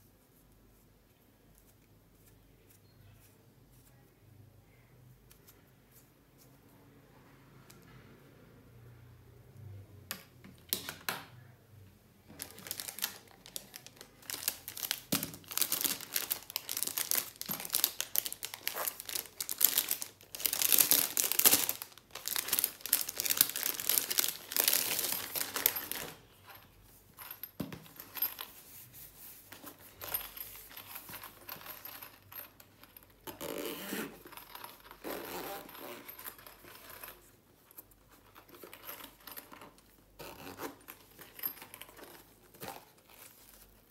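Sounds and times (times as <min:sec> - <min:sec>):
plastic wrapping crinkling: 0:12.3 - 0:26.2
hands handling pencil case: 0:12.3 - 0:43.9.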